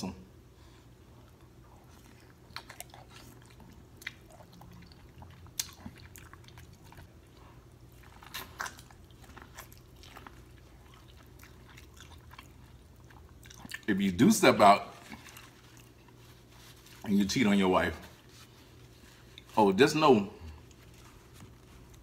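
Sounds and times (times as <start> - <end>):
chewing sounds: 1.0 - 14.0, 14.9 - 17.2, 20.4 - 22.0.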